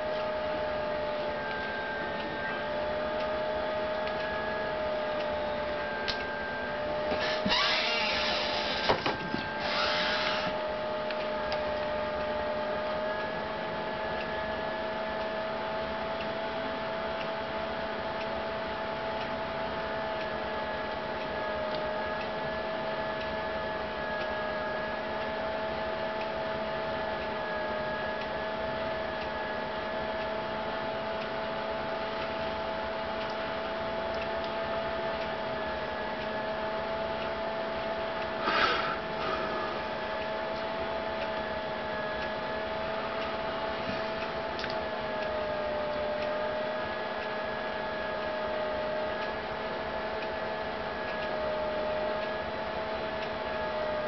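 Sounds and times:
steady electrical whine: 0.0s - 54.0s
hiss: 38.4s - 39.8s.

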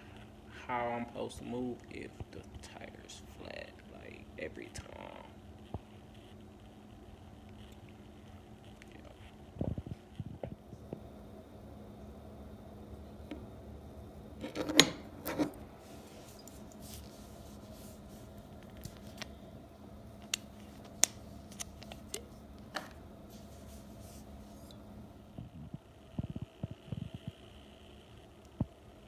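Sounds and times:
faint low hum: 0.0s - 29.0s
crackling clicks: 20.2s - 22.9s.

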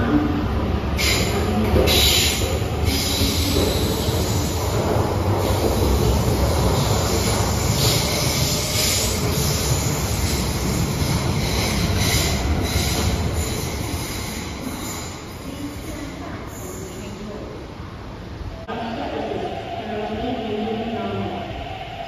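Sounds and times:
train wheels rumbling on rail: 0.8s - 17.2s.

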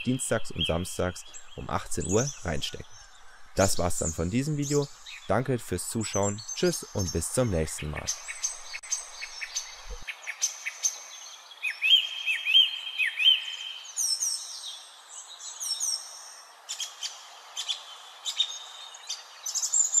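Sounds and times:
steady hiss: 0.0s - 10.0s
songbirds singing: 0.0s - 20.0s.

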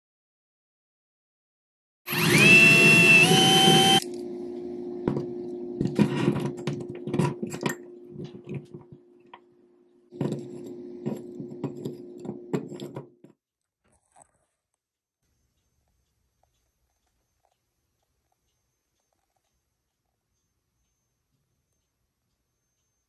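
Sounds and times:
power drill whining: 2.1s - 4.0s
steady hum: 2.7s - 13.1s.

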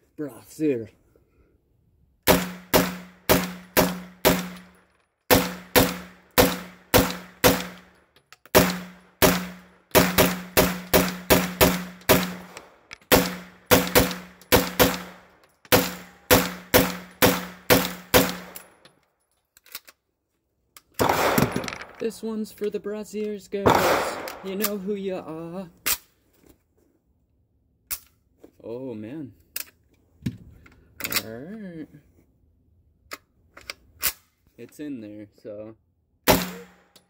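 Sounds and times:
pistol shots ringing indoors: 21.0s - 21.7s, 23.7s - 24.6s.

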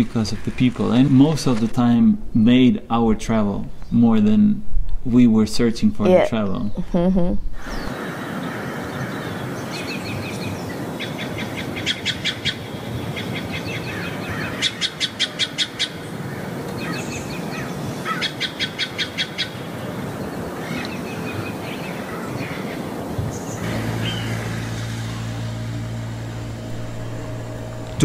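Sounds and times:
birds calling: 7.6s - 28.0s.

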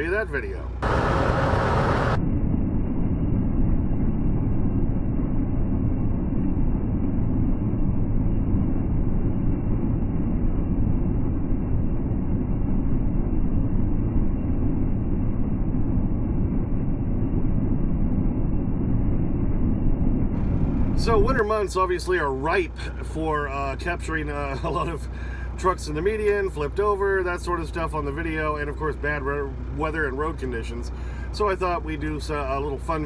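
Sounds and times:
road noise: 0.0s - 2.2s, 20.4s - 26.4s, 27.6s - 33.0s
muffled truck engine rumble: 0.0s - 33.0s.

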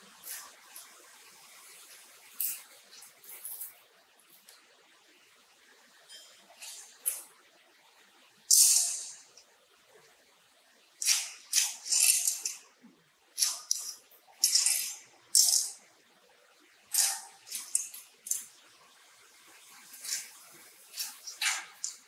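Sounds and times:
rebar metal scraping and rattling: 20.0s - 22.0s.

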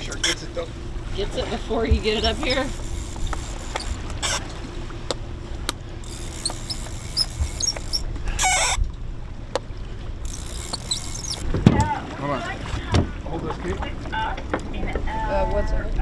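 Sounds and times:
wind and water rushing: 0.0s - 16.0s
short high squeaks: 2.2s - 4.6s, 6.1s - 8.9s, 10.3s - 11.5s
sharp reel clicks: 2.3s - 4.6s, 6.0s - 8.8s, 10.2s - 11.5s
brief squeal: 6.4s - 8.8s.

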